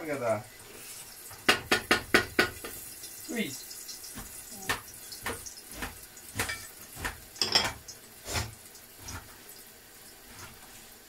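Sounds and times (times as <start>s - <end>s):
kitchen knocks and clatters: 1.3s - 2.8s, 4.0s - 9.4s.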